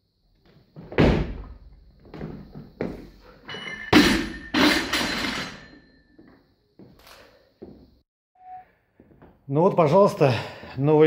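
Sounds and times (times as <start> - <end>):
metallic ringing: 3.5 - 6.2.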